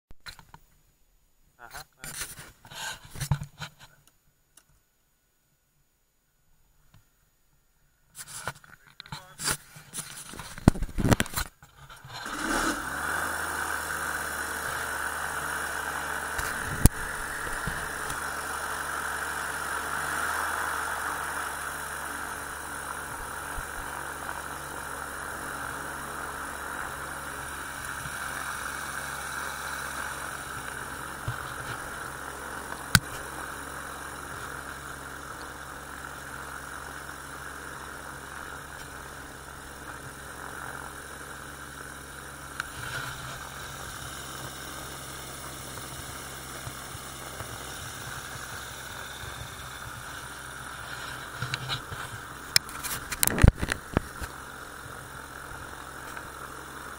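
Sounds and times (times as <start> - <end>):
engine idling: 12.0 - 56.9.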